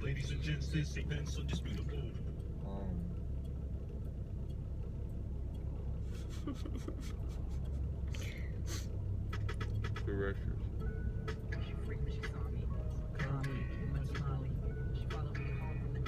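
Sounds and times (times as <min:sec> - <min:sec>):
car cabin rumble: 0:00.0 - 0:16.0.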